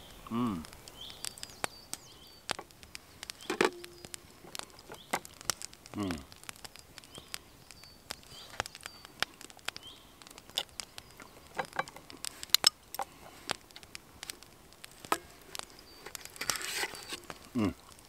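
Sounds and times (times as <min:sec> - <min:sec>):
fork tapping and scraping a pan: 0:11.6 - 0:12.0.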